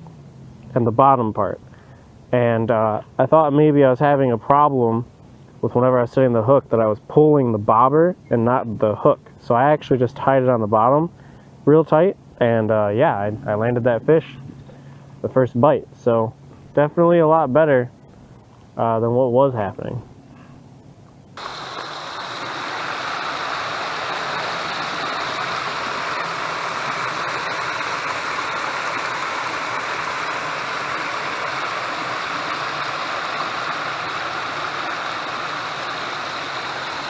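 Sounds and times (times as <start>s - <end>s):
water rushing over spillway: 21.4s - 37.0s.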